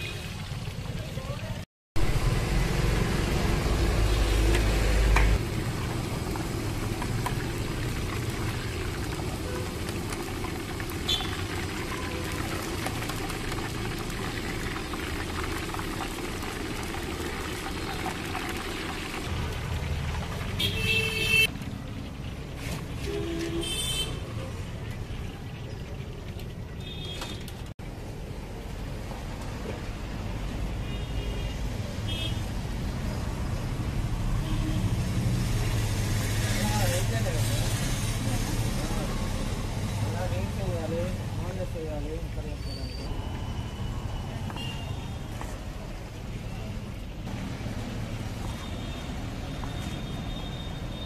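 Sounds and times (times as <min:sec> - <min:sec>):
hot oil sizzling and bubbling: 0:00.0 - 0:51.0
street traffic rumble: 0:00.0 - 0:51.0.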